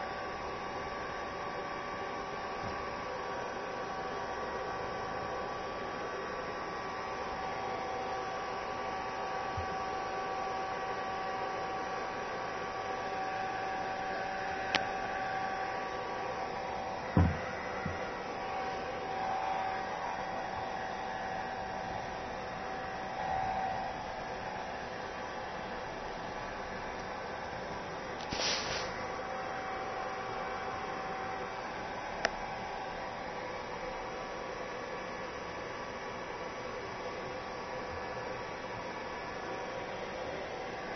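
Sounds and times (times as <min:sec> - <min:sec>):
hair dryer running: 0:13.0 - 0:24.9
light knocks: 0:17.2 - 0:18.0
short thump: 0:17.2 - 0:18.0.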